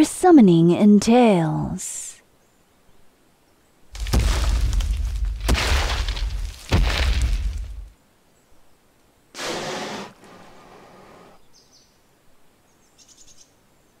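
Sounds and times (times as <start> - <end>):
deep rumble: 4.0 - 7.9.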